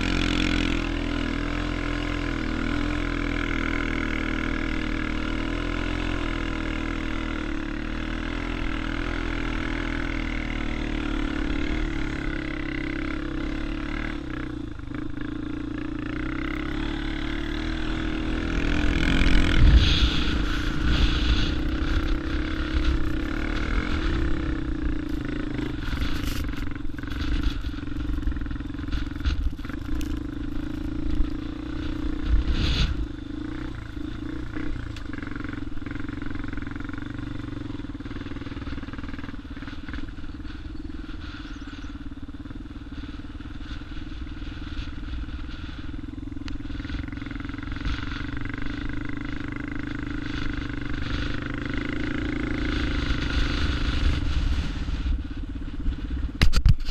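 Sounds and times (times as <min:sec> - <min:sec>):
quad bike engine running: 0:00.0 - 0:56.9
microphone rumble: 0:16.5 - 0:56.9.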